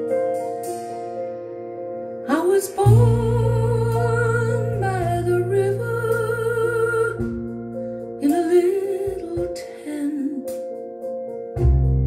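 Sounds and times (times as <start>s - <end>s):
woman singing: 2.3s - 7.5s, 8.2s - 10.7s
accompaniment with deep bass: 2.8s - 8.2s, 11.6s - 12.0s.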